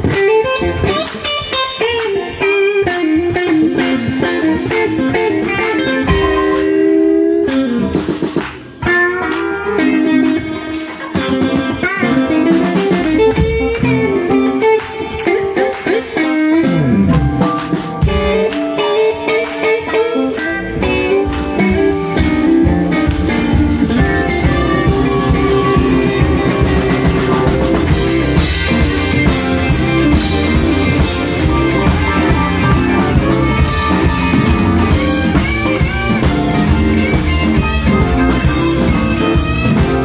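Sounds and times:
bass: 0.0s - 18.6s, 20.3s - 40.0s
drums: 0.0s - 40.0s
electric guitar lines: 0.0s - 40.0s.

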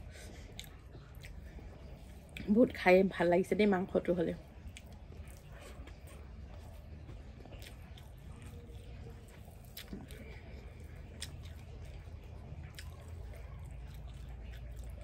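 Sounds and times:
chewing and mouth sounds: 0.0s - 15.0s
low steady hum: 0.0s - 15.0s
fingers squishing rice: 4.4s - 15.0s.

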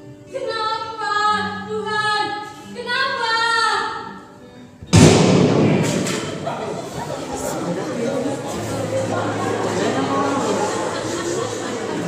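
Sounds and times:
woman singing: 0.3s - 4.0s
loud thump: 4.9s - 6.5s.

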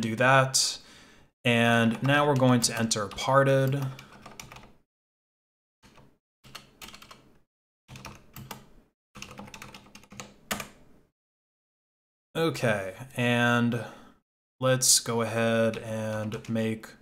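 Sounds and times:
keyboard typing: 2.0s - 4.8s, 5.8s - 10.8s.

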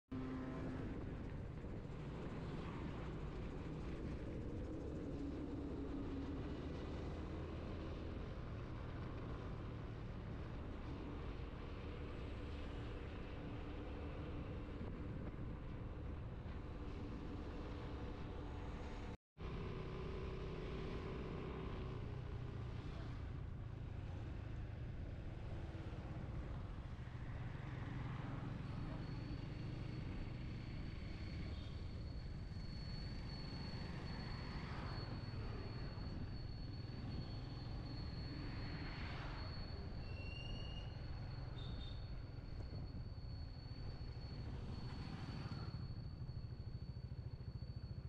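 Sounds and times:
motorcycle engine and road rumble: 0.1s - 48.0s
thin high whine: 28.6s - 48.0s.

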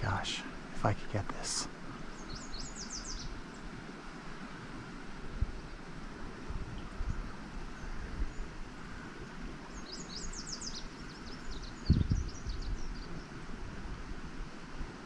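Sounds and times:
songbird chirping: 0.0s - 3.8s, 7.0s - 13.3s
wind buffeting microphone: 1.8s - 15.0s.

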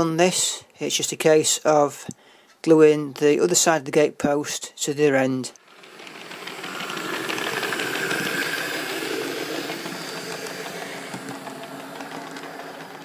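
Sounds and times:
model train rumbling on track: 5.6s - 13.0s.

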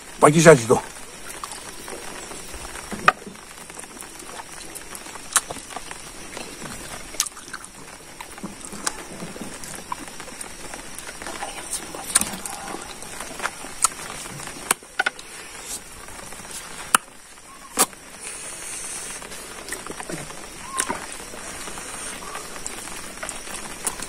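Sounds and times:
man chewing and lip smacking: 5.3s - 5.8s
wet mouth clicks: 11.7s - 12.9s.

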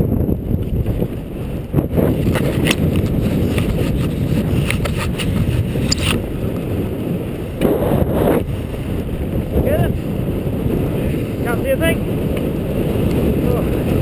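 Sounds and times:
wind buffeting microphone: 0.0s - 14.0s
camera handling knocks and scrapes: 2.1s - 6.2s.

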